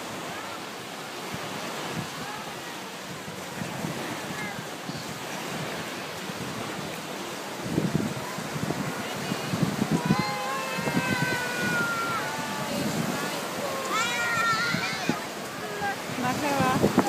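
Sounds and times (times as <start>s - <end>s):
surf washing onto shore: 0.0s - 17.0s
wind buffeting microphone: 1.2s - 17.0s.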